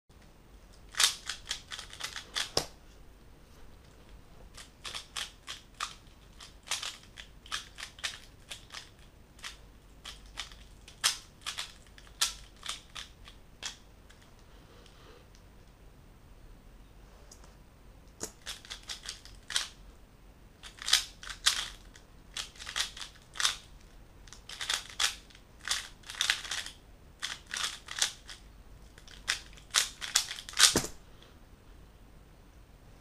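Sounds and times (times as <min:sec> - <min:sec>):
puzzle cube clicking turns: 0:00.7 - 0:02.8, 0:04.5 - 0:14.3, 0:18.1 - 0:19.8, 0:20.6 - 0:31.0.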